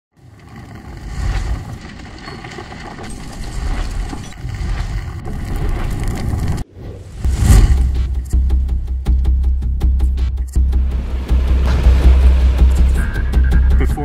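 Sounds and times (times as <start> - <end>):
deep rumbling flames: 0.2 - 8.2.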